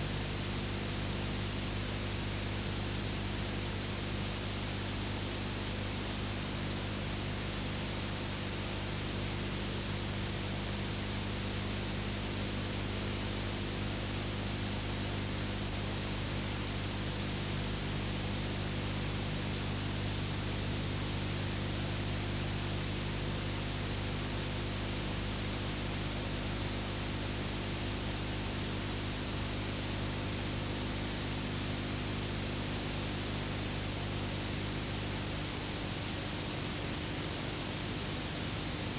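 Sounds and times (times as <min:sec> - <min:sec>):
low electrical hum: 0:00.0 - 0:01.0, 0:01.6 - 0:38.9.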